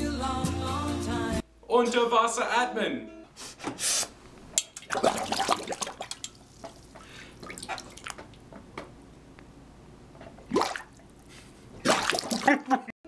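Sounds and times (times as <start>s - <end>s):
water splashing in a metal bowl: 4.6s - 8.4s, 10.5s - 11.1s, 11.8s - 12.6s.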